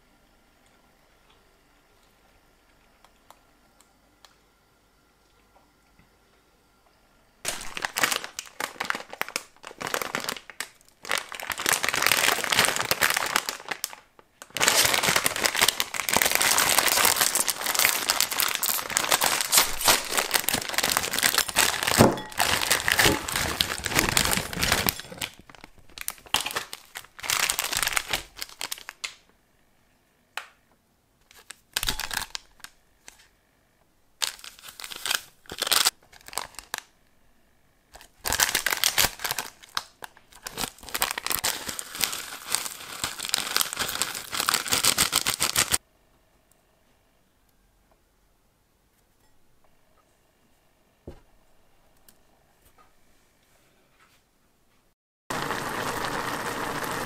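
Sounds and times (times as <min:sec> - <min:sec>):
plastic packaging crinkling and tearing: 0:07.5 - 0:29.2, 0:31.2 - 0:33.3, 0:34.2 - 0:36.9, 0:38.0 - 0:45.8
small sachets crinkling: 0:07.5 - 0:29.2, 0:31.2 - 0:33.3, 0:34.2 - 0:37.0, 0:38.0 - 0:45.8.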